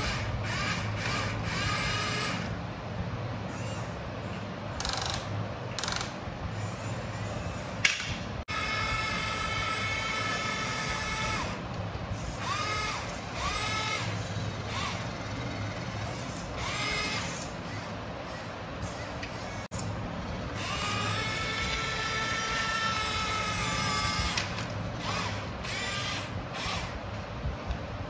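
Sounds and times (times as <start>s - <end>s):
electric motor and gears whining: 0.0s - 27.7s.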